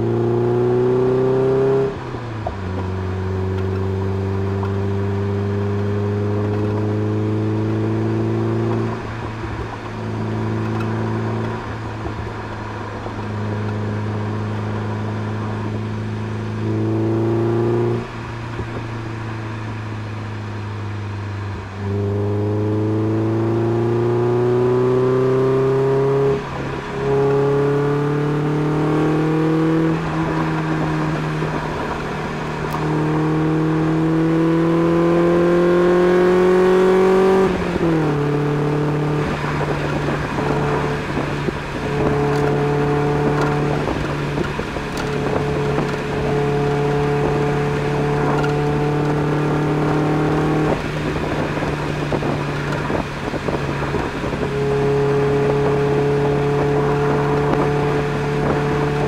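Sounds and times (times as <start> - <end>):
car engine revving through exhaust: 0.0 - 59.0.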